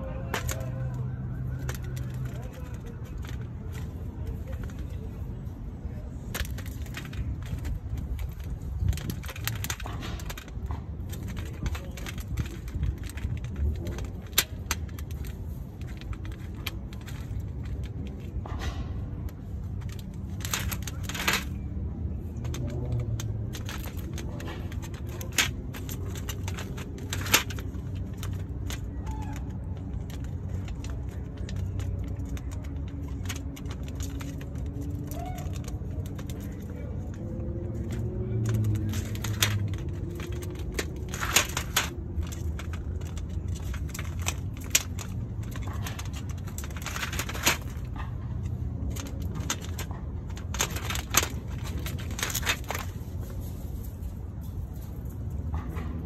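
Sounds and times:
squirrel cracking peanuts: 0.0s - 56.0s.

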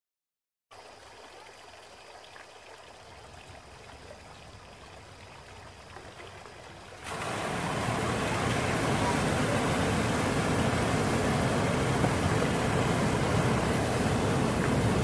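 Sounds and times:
faint steady hiss: 0.7s - 15.0s
floodwater rushing: 3.6s - 15.0s.

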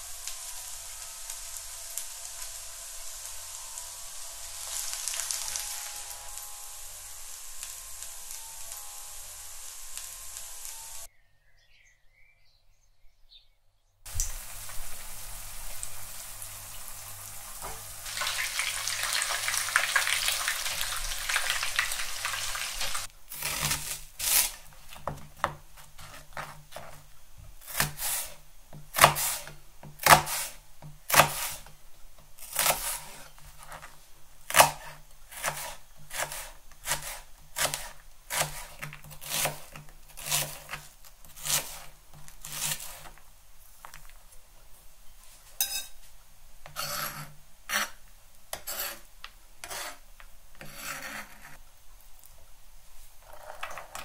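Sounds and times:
crackling hiss: 0.0s - 11.1s, 14.1s - 25.0s
knife chopping on plastic board: 27.6s - 31.6s, 34.5s - 41.8s.

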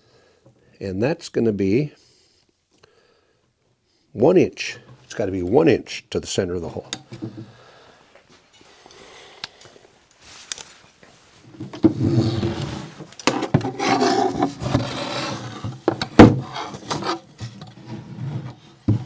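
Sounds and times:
wood scraping and rubbing: 10.2s - 19.0s
sharp wooden knocks: 15.8s - 16.5s.

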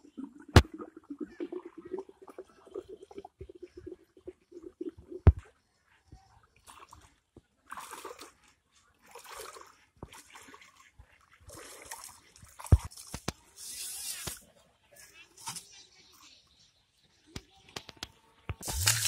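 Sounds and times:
pond water splashing: 0.0s - 5.8s, 6.5s - 15.6s, 17.4s - 19.0s.

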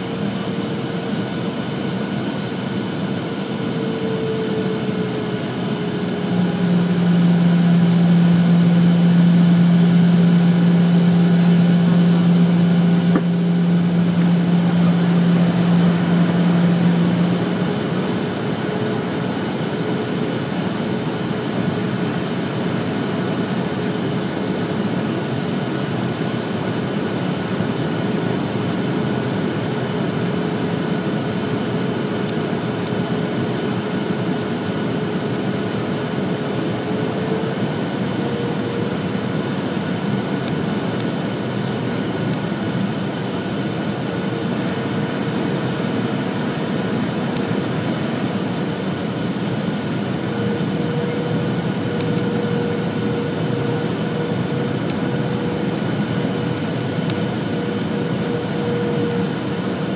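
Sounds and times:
airliner cabin engine rush: 0.0s - 59.9s
rising hum: 6.0s - 19.3s.

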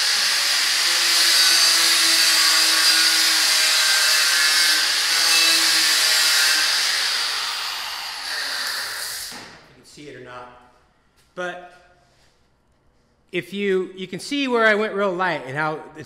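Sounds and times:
angle grinder grinding steel: 0.0s - 9.3s.

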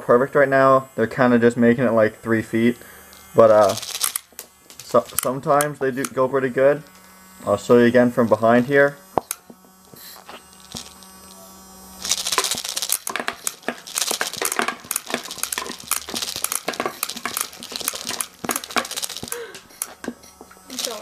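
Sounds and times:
small motor humming: 0.3s - 21.0s
plastic pellets clattering: 3.5s - 5.8s, 9.2s - 11.4s, 12.0s - 21.0s.

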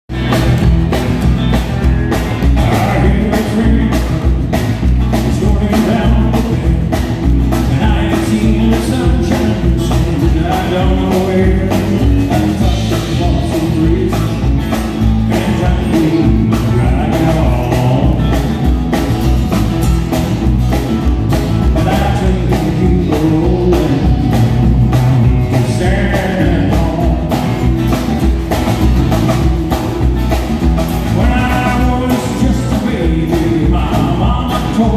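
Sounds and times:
acoustic guitar strumming: 0.1s - 34.9s
country-rock band playing: 0.1s - 34.9s
man singing: 2.4s - 18.7s, 21.6s - 27.9s, 31.1s - 34.9s.

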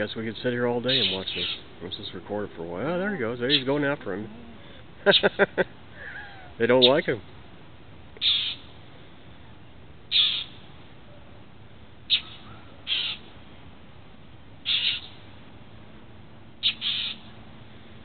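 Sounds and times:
bird harsh scolding calls: 0.8s - 1.8s, 3.4s - 4.0s, 4.6s - 5.4s, 6.7s - 7.1s, 8.2s - 8.7s, 10.1s - 10.7s, 12.1s - 13.3s, 14.6s - 15.2s, 16.6s - 17.4s.

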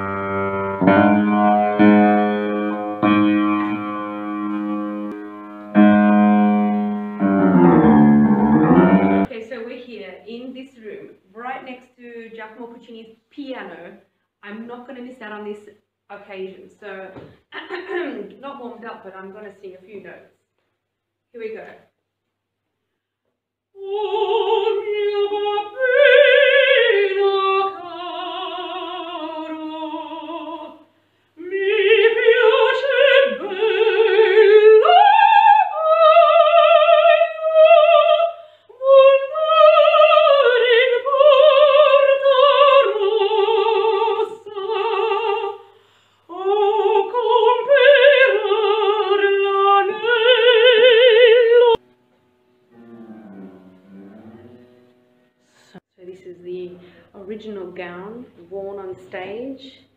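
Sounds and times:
woman singing operatically: 23.8s - 30.8s, 31.4s - 45.6s, 46.3s - 51.8s.

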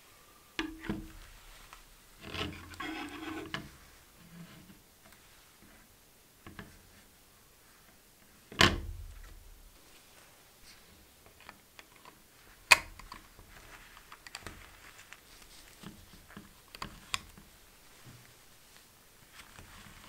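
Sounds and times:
plastic scraping and rubbing: 0.6s - 4.8s.

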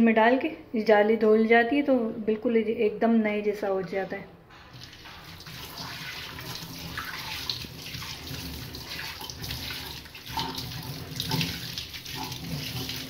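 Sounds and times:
tap water running into metal sink: 4.7s - 13.0s.

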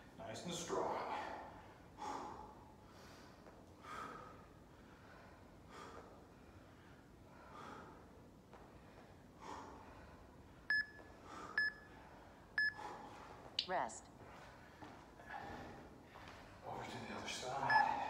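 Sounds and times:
person breathing: 1.5s - 8.2s, 8.8s - 10.5s, 17.7s - 18.0s.

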